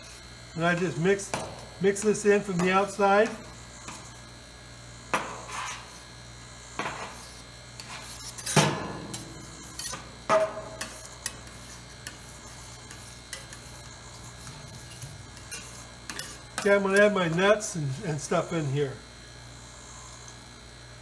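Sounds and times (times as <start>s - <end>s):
metal knives scraping steel pan: 5.2s - 6.0s, 6.8s - 17.7s.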